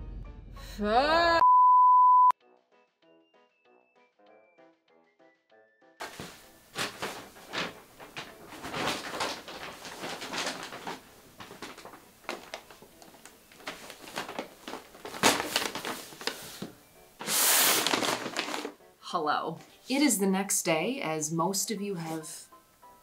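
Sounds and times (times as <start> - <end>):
paper bag rustling: 6.0 - 18.8.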